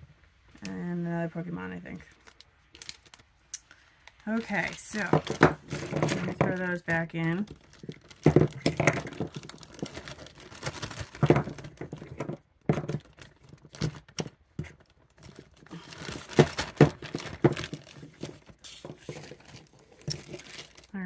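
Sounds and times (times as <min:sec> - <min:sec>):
plastic bag crinkling: 0:01.7 - 0:21.0.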